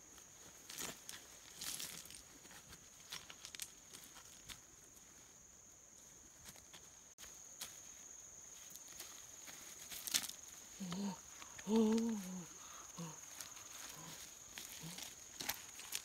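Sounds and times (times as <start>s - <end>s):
high insect drone: 0.0s - 16.0s
footsteps on loose pebbles: 0.2s - 5.1s, 6.5s - 12.2s, 13.2s - 16.0s
person's wordless vocal sounds: 10.8s - 15.1s.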